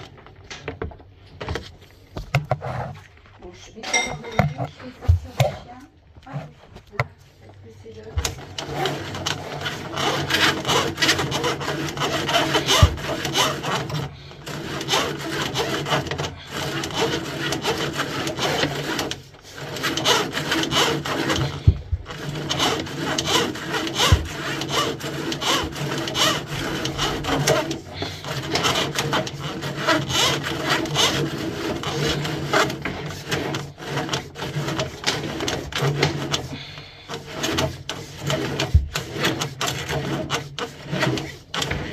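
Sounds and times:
drain snake cable scraping in pipe: 0:00.0 - 0:41.9.

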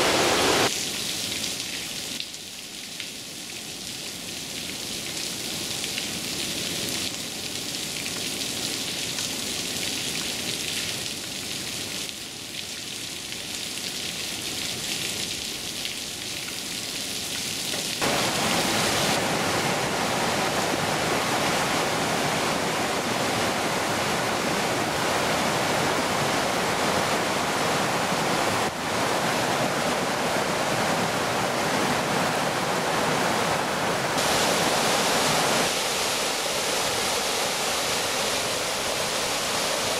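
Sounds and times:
creek rushing over rocks: 0:00.0 - 0:00.7, 0:18.0 - 0:39.9.

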